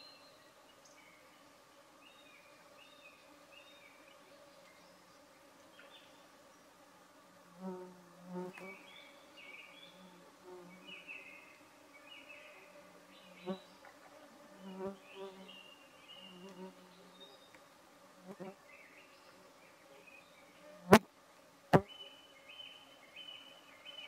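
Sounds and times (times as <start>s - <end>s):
insects buzzing: 0.0s - 21.1s
birds singing: 8.5s - 10.0s, 10.7s - 13.9s, 14.6s - 17.7s, 21.8s - 24.0s.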